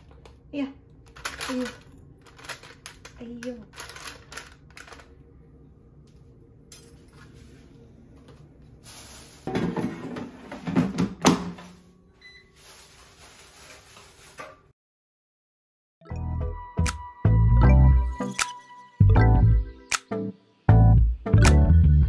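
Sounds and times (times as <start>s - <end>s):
air fryer basket knocks and scrapes: 9.5s - 11.7s.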